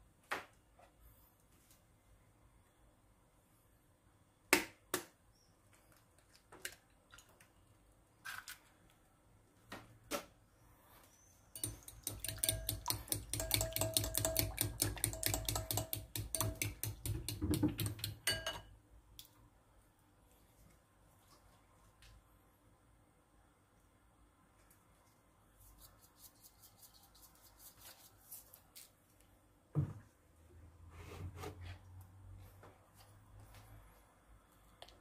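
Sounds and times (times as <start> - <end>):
sharp taps and knocks: 11.6 - 18.2
fork beating eggs in glass bowl: 11.6 - 18.6.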